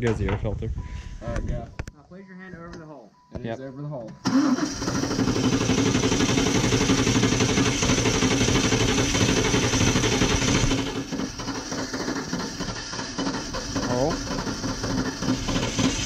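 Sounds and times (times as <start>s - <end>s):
car engine running: 4.3s - 16.0s.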